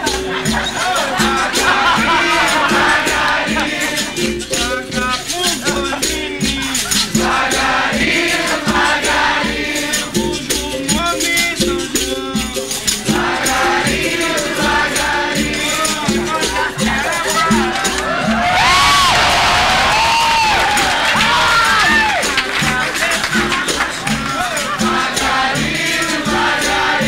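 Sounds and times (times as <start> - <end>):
caxixi rattles shaking: 0.0 - 8.4
berimbau: 0.0 - 18.6
group of voices singing: 0.0 - 27.0.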